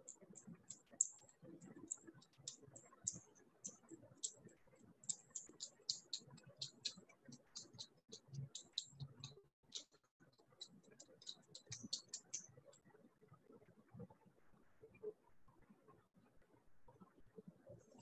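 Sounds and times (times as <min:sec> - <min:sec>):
faint high clicks: 0:05.0 - 0:12.8.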